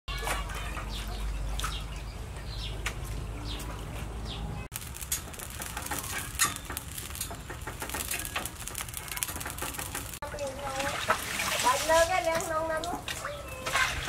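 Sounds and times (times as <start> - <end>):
noodles splashing into water: 4.8 - 14.0.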